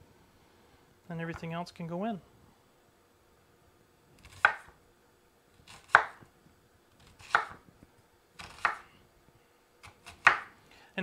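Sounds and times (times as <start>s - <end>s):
knife slicing onion on board: 4.2s - 4.8s, 5.6s - 6.3s, 7.0s - 7.7s, 8.4s - 8.9s, 9.8s - 10.6s.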